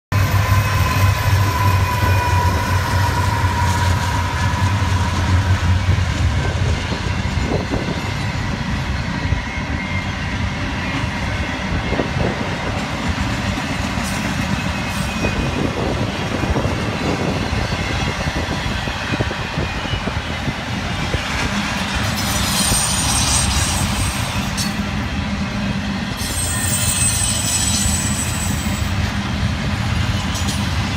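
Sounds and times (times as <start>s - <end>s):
diesel locomotive engine: 0.1s - 30.9s
train wheels clattering on rail: 0.1s - 30.9s
high-pitched wheel squeal: 0.2s - 5.8s, 22.2s - 24.8s, 26.2s - 29.0s.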